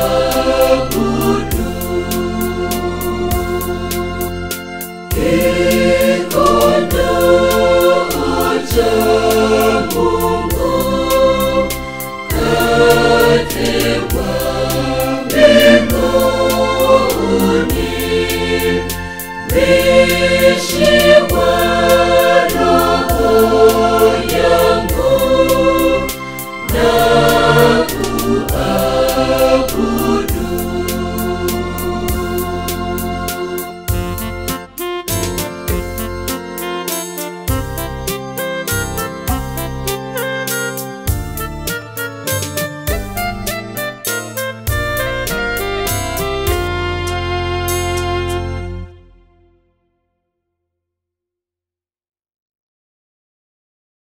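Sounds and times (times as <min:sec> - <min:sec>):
choir singing a gospel hymn: 0:00.0 - 0:04.5, 0:05.1 - 0:34.5
instrumental backing with bass: 0:00.0 - 0:49.8.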